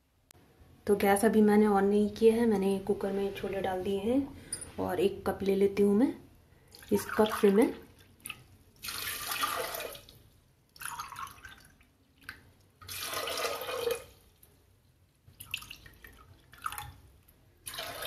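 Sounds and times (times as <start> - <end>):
water splashing and dripping: 6.7 - 14.5
water pouring into a pot: 8.7 - 14.4, 15.4 - 17.0, 17.6 - 18.0.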